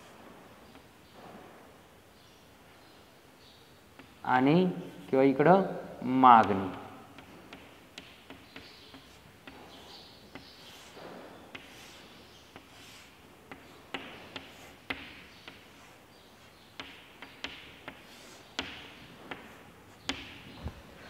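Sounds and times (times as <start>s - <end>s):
chalk tapping on chalkboard: 6.4s - 20.5s
chalk scratching: 7.2s - 20.3s.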